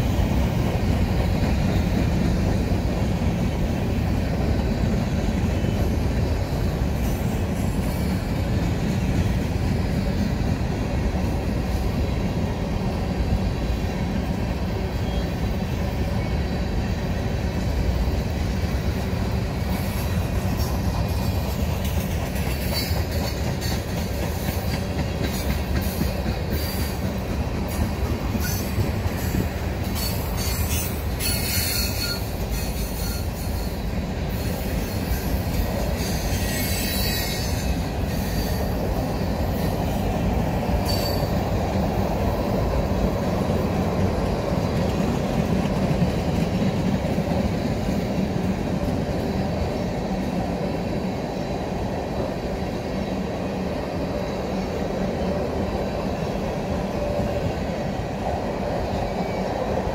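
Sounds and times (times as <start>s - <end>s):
train wheels rumbling on rail: 0.0s - 59.9s
high-pitched wheel squeal: 30.0s - 33.8s, 36.0s - 38.8s.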